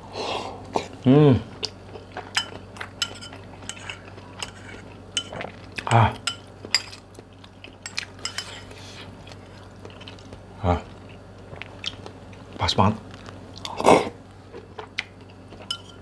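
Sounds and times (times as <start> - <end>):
metal spoon clinking against bowl: 15.7 - 16.0.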